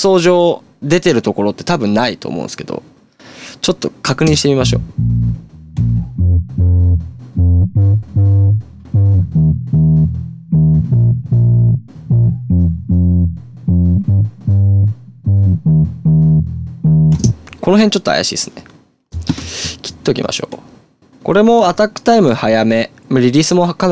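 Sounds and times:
electric bass playing short low notes: 0:04.3 - 0:17.4, 0:19.2 - 0:19.9.

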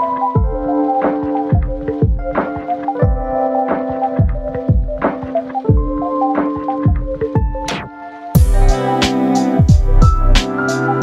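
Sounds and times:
held synth chords: 0:00.0 - 0:11.0
deep drum thumps: 0:08.4 - 0:08.8, 0:09.6 - 0:10.4.

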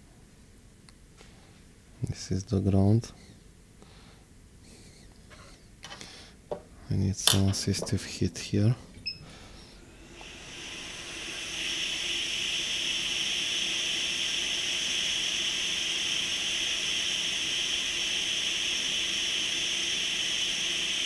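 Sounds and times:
hot air blower hissing: 0:07.3 - 0:21.0.

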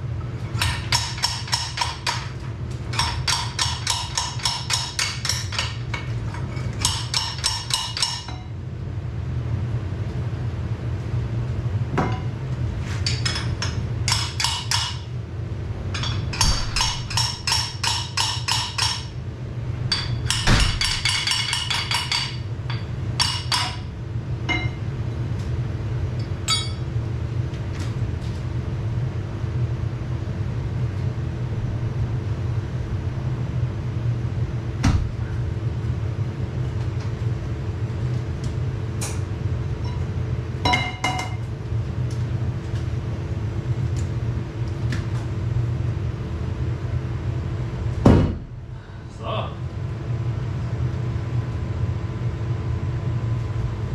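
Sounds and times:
low machine hum: 0:00.0 - 0:53.9
knocks and clinks: 0:24.5 - 0:24.8, 0:26.5 - 0:26.8.

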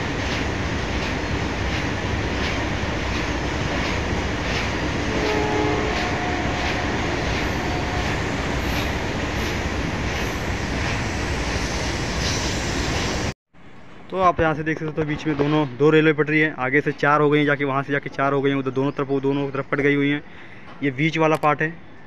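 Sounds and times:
train wheels clacking on rail joints: 0:00.0 - 0:11.2
freight train rumbling past: 0:00.0 - 0:14.1.

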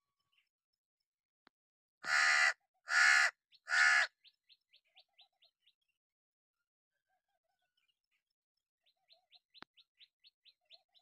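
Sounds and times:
crow cawing: 0:02.0 - 0:04.2.

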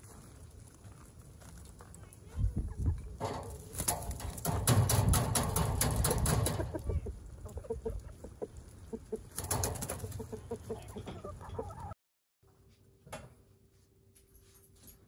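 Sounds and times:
chickens clucking softly: 0:06.4 - 0:12.0.

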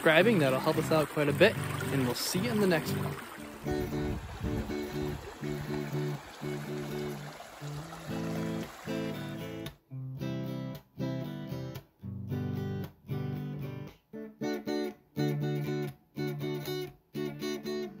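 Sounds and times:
acoustic guitar strumming chords: 0:00.0 - 0:18.0.

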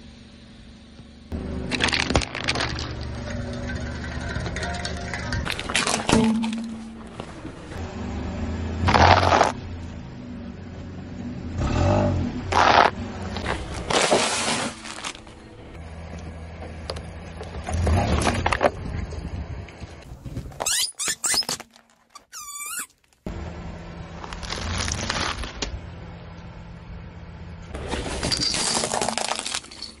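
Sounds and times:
car hum: 0:00.0 - 0:20.8, 0:22.7 - 0:27.9
plastic toys cracking under tyre: 0:01.7 - 0:03.2
dry macaroni crunching: 0:01.7 - 0:07.3, 0:24.2 - 0:25.6
drink cans crumpling: 0:01.7 - 0:07.4, 0:27.9 - 0:30.0.

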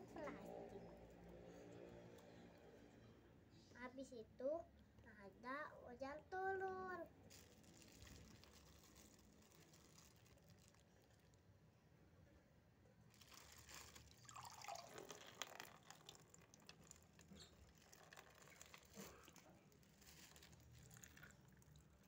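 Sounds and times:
water dripping onto plastic: 0:13.2 - 0:22.0.

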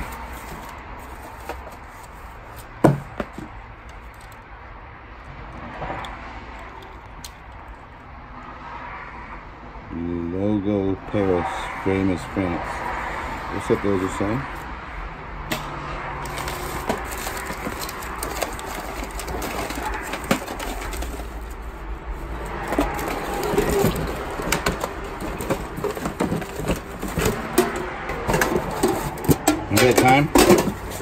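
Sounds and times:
items clicking and knocking: 0:00.0 - 0:04.5, 0:05.5 - 0:07.9, 0:15.5 - 0:31.0
paper and plastic rustling: 0:00.0 - 0:04.5, 0:16.2 - 0:31.0.

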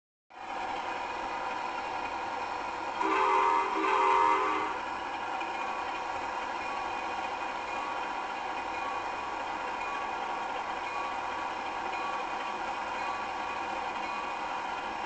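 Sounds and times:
locomotive engine idling: 0:00.4 - 0:15.0
locomotive horn blasts: 0:03.0 - 0:04.8.

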